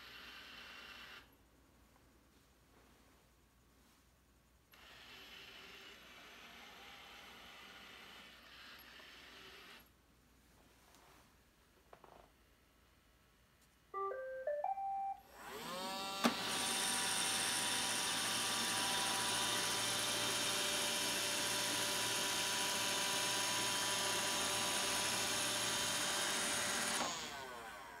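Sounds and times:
robot vacuum motors whining: 4.7 - 10.0, 15.3 - 28.0
robot vacuum beeping tune: 14.0 - 16.4.

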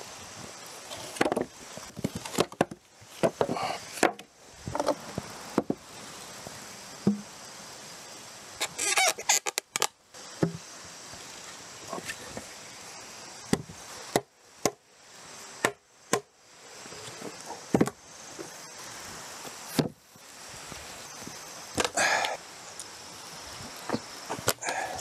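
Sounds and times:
wooden sawhorses clunking on concrete: 0.9 - 5.8.

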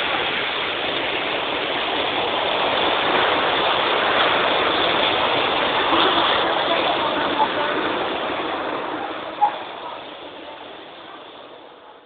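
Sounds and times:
heavy rain: 0.0 - 12.0.

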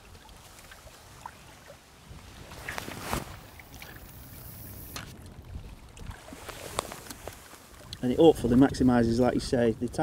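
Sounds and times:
fishing line hissing off reel: 3.5 - 5.1.

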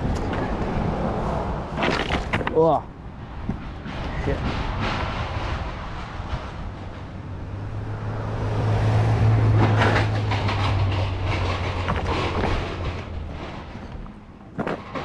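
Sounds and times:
motor vehicle engine passing: 4.6 - 14.2
sharp clicks and knocks: 9.5 - 15.0.

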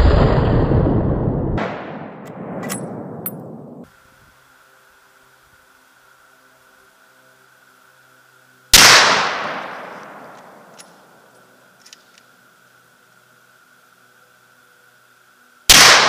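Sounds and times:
rifle shot: 1.6 - 3.8, 8.8 - 10.8, 15.7 - 16.0.

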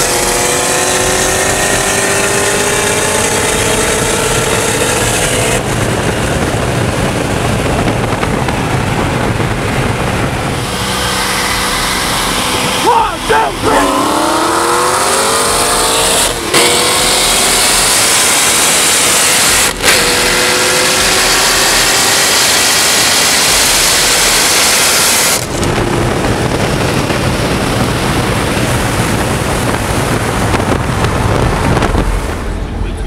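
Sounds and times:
low car rumble: 0.0 - 33.0
sports car engine revving: 0.0 - 33.0
wind and road noise: 0.0 - 33.0.

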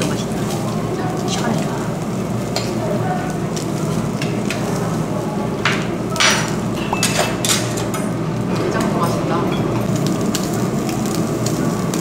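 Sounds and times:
meat sizzling on grill: 0.0 - 12.0
cutlery and dishes clinking: 6.2 - 8.1.

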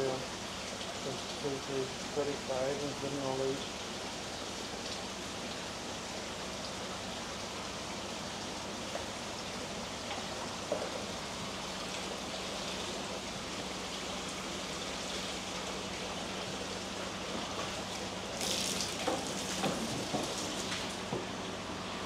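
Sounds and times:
running water rushing: 0.0 - 22.0.

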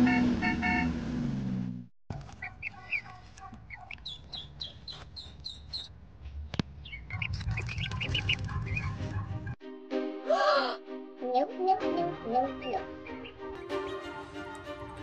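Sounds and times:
ducklings peeping: 2.2 - 5.9, 6.8 - 9.3.

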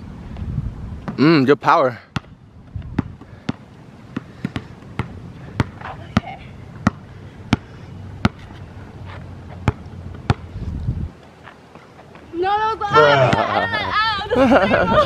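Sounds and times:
basketball bouncing on hard court: 2.1 - 8.4, 9.6 - 10.5.

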